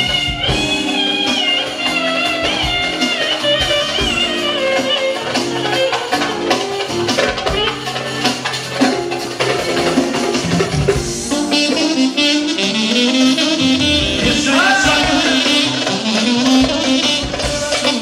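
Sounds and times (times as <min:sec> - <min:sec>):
steady drum beat: 0:13.4 - 0:18.0.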